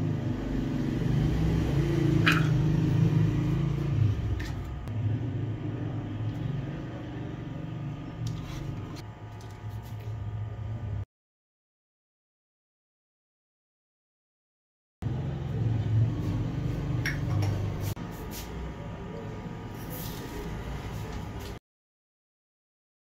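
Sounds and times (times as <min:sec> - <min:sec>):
low machine hum: 0:00.0 - 0:11.0, 0:15.0 - 0:21.6.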